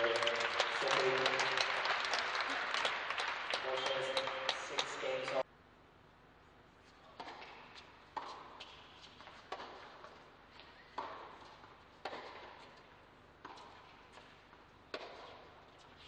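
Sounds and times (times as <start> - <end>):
tennis rackets hitting ball: 7.2 - 10.2, 10.9 - 12.8, 13.4 - 15.5.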